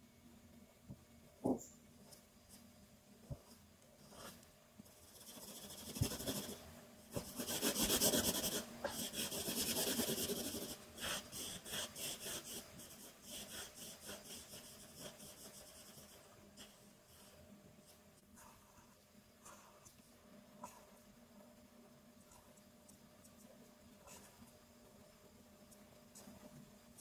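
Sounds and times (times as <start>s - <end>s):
marker scribbling on paper: 5.1s - 17.4s.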